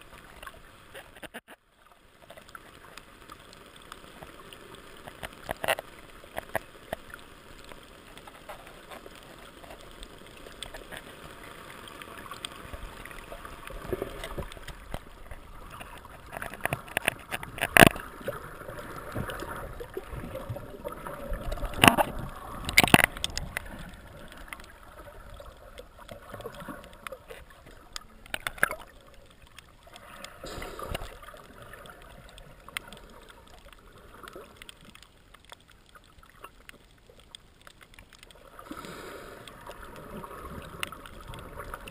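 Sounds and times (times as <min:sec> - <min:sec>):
underwater water wash gurgling: 0:02.0 - 0:41.9.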